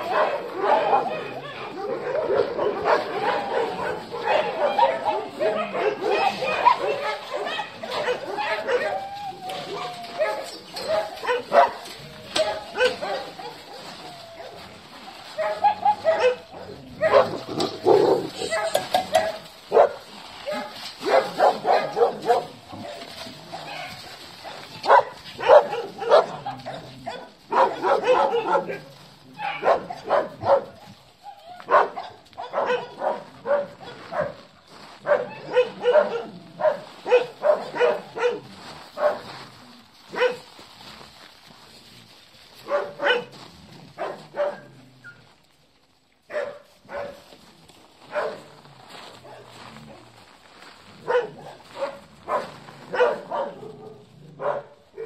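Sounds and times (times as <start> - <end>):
dogs barking: 0.0 - 14.7, 15.3 - 31.0, 31.6 - 39.4, 40.1 - 40.5, 42.6 - 43.4, 44.0 - 44.8, 46.3 - 47.3, 48.0 - 48.6, 51.0 - 55.0
dogs yipping: 0.0 - 34.4, 35.1 - 38.4, 51.1 - 53.6.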